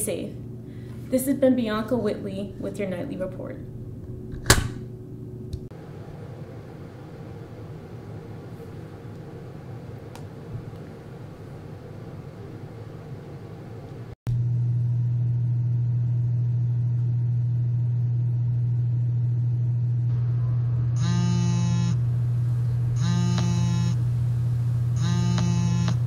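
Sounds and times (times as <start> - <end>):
loud low hum: 0.0 - 26.0
alarm tone: 20.1 - 22.1, 22.9 - 24.1, 24.9 - 26.0.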